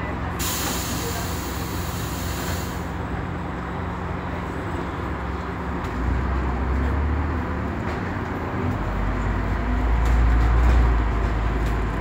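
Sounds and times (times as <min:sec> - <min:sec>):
bus engine hum: 0:00.0 - 0:12.0
air hiss: 0:00.4 - 0:02.9.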